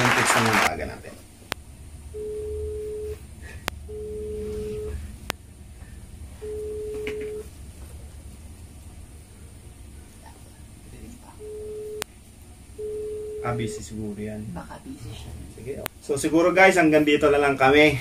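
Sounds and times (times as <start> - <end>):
phone ringback tone: 2.1 - 3.2, 3.9 - 5.0, 6.4 - 7.5, 11.4 - 12.0, 12.8 - 13.8.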